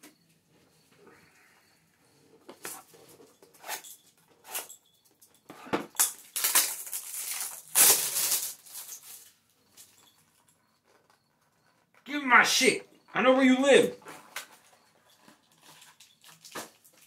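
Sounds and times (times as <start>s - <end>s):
plastic wrapping crinkling: 5.9s - 10.1s, 14.3s - 17.0s.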